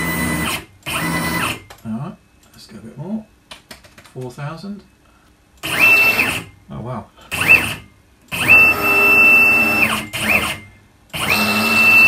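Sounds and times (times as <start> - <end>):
stepper motor whine: 0.0 - 1.6, 5.6 - 6.5, 7.3 - 12.0.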